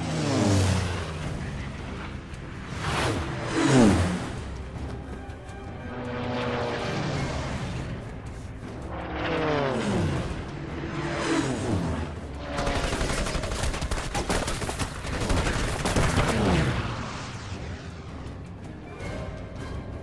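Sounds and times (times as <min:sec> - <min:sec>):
propeller plane diving past: 0:00.0 - 0:20.0
machine-gun fire: 0:12.6 - 0:16.6.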